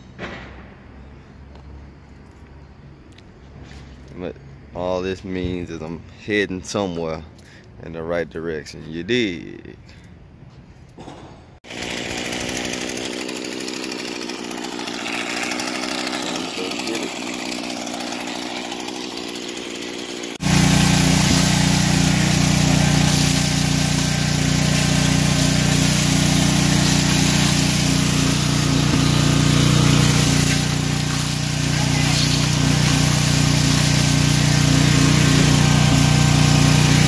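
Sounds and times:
vacuum cleaner sucking up glass: 20.4 - 37.0.

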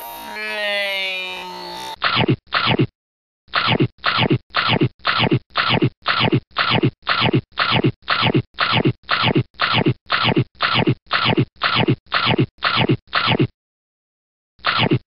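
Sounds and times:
repeated falling scratch sound: 3.5 - 13.5, 14.6 - 15.0.

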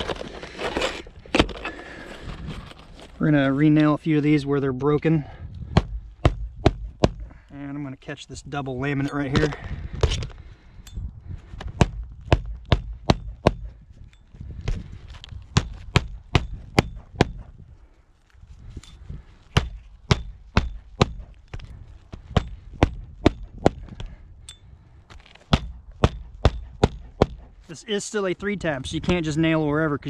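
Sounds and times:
hatchet striking roofing nails: 5.7 - 7.3, 11.7 - 13.8, 19.5 - 24.2, 25.4 - 27.6.

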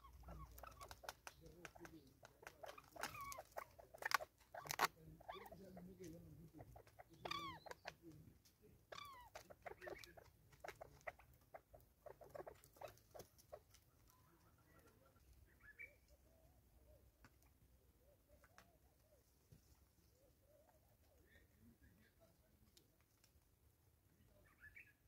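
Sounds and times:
birds pecking at plastic feeder: 0.0 - 16.3.

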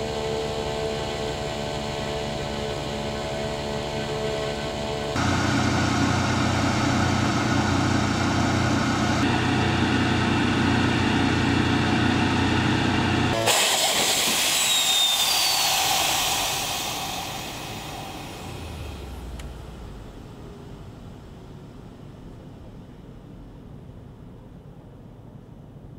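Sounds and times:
small piston engine running: 13.4 - 19.1
catapult launch rushing hiss: 13.4 - 19.2.

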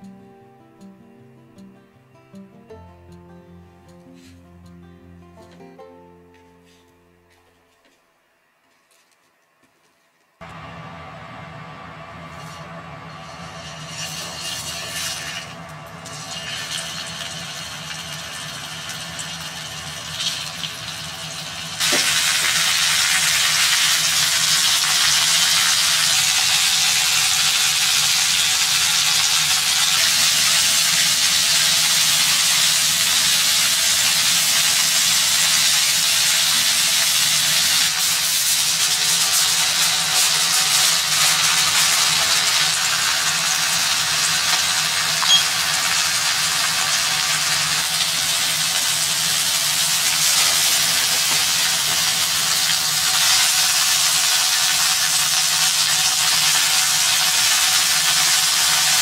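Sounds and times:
food sizzling in oil: 13.1 - 59.0.

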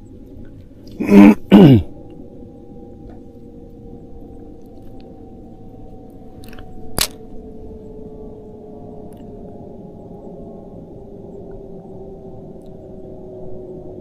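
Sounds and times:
faint hum: 0.0 - 14.0
man clearing his throat: 0.9 - 1.9.

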